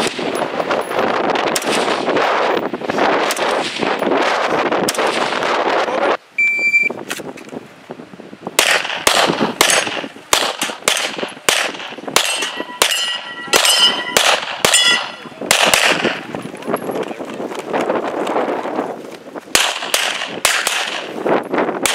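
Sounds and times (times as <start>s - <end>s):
wind on microphone: 0.0s - 21.9s
rapid handgun shots: 1.3s - 5.8s, 8.6s - 16.3s, 19.5s - 21.2s
shot timer beep: 6.4s - 6.9s
steel targets ringing: 12.2s - 15.2s.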